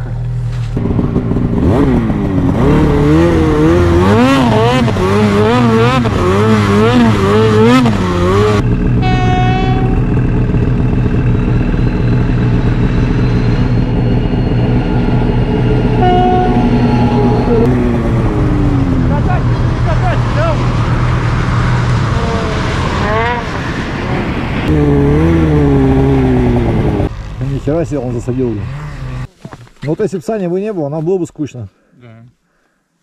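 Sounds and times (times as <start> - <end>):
snowmobile engine revving: 0.8 - 29.3
train horn: 9.0 - 10.1, 16.0 - 17.7.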